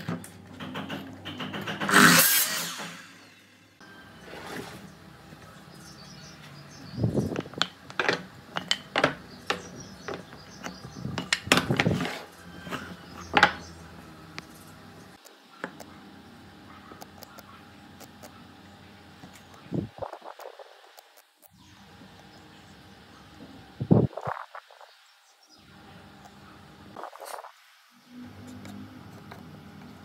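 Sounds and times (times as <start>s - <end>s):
wood and tools knocking: 0.0s - 2.0s, 7.3s - 13.7s.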